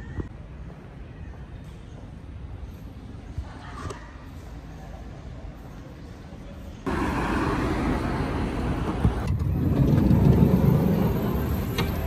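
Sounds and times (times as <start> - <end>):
road traffic: 6.8 - 12.0.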